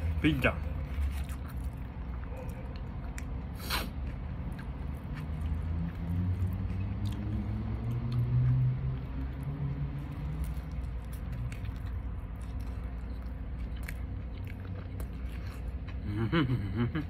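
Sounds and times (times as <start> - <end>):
person chewing food: 0.1 - 16.4.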